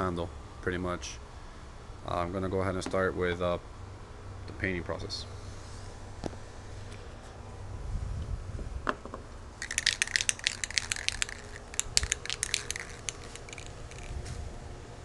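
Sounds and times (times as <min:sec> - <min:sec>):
spray can ball rattling: 0:09.6 - 0:14.4.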